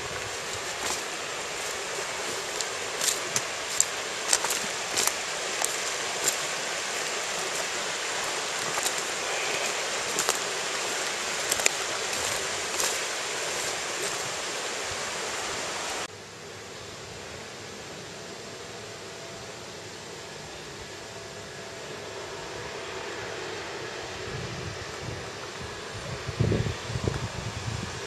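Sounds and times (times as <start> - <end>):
stream water rushing: 0.0 - 16.1.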